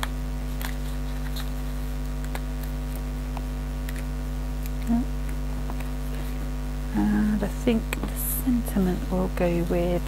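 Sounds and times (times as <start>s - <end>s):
card sheet clicks: 0.0s - 1.6s, 2.2s - 5.9s
electrical mains hum: 0.0s - 10.0s.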